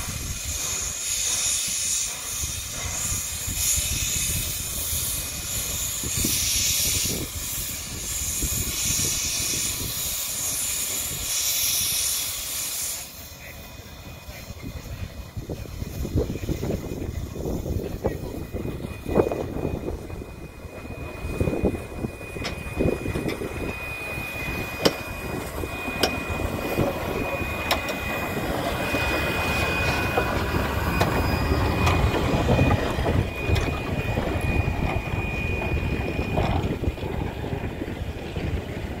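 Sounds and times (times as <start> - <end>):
steam locomotive rolling past: 0.0 - 39.0.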